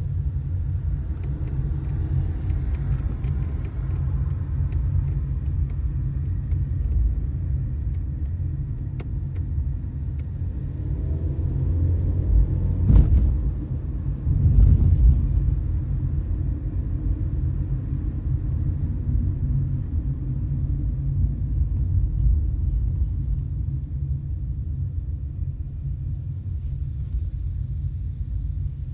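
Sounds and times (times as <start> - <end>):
car engine and tyre rumble: 0.0 - 28.9
car bump: 12.8 - 13.4.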